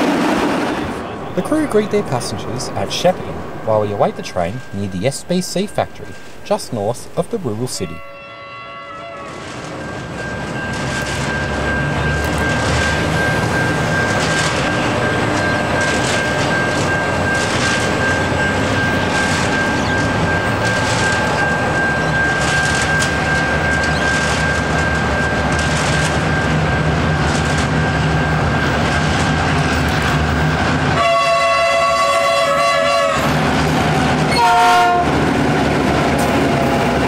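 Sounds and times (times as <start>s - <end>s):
diesel locomotive engine drone: 0.0s - 37.0s
locomotive horn chord: 8.0s - 9.7s, 31.0s - 33.4s, 34.3s - 35.2s.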